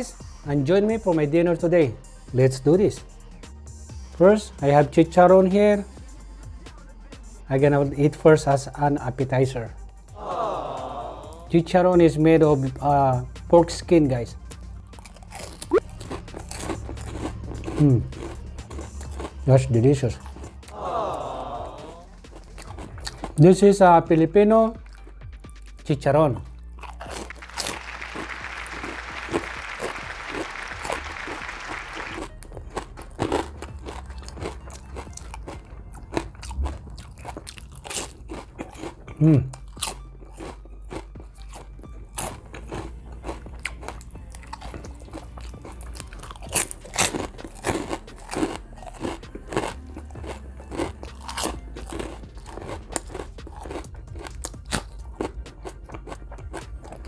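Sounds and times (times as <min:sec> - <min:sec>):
crunchy chewing: 0:14.9 - 0:20.7, 0:21.7 - 0:23.5, 0:24.8 - 0:25.8, 0:26.4 - 0:57.0.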